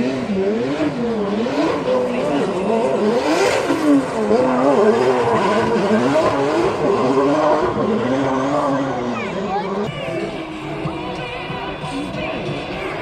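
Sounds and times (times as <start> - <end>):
car engine revving: 0.0 - 13.0.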